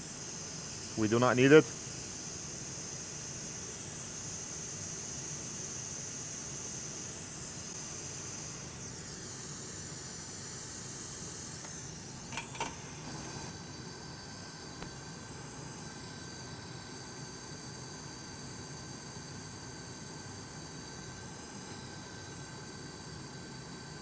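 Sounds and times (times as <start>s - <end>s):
hot air station hissing: 0.0s - 24.0s.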